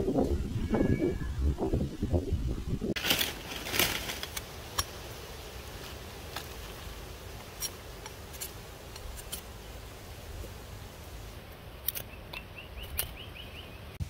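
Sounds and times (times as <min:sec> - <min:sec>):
blade shaving wooden stick: 0:05.8 - 0:09.7.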